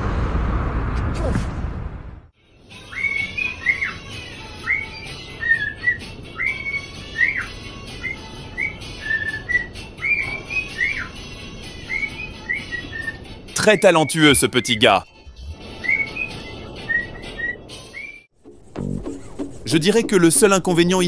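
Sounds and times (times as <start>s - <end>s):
cockatiel whistling: 2.9s - 4.0s, 4.6s - 11.2s, 11.9s - 14.8s, 15.8s - 18.3s.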